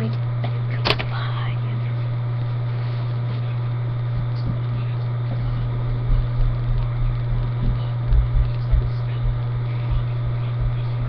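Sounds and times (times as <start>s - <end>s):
steady low hum: 0.0s - 11.0s
dull low thumps: 5.3s - 11.0s.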